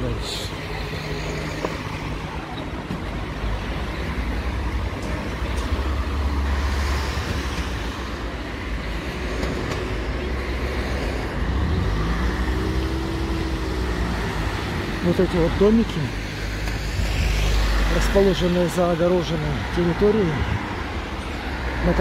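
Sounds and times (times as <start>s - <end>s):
street traffic passing: 0.0s - 22.0s
louder vehicle passing: 3.3s - 22.0s.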